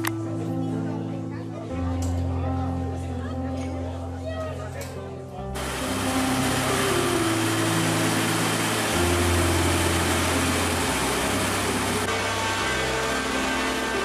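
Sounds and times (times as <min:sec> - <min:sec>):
background music: 0:00.0 - 0:14.0
rushing machinery noise: 0:05.6 - 0:14.0.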